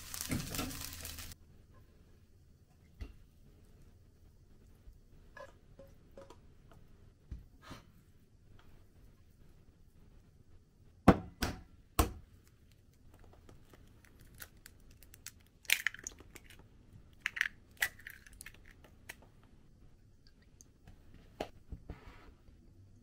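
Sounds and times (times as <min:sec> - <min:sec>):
eggs cracking into bowl: 0:12.9 - 0:19.3.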